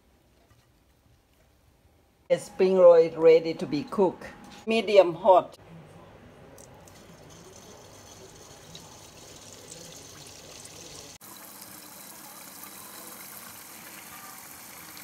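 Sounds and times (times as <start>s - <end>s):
deep-frying sizzle and bubbling: 6.9s - 15.0s.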